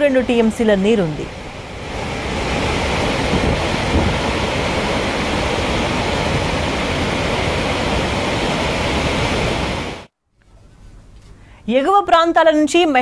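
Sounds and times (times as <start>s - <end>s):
water rushing through spillway: 0.3s - 10.1s.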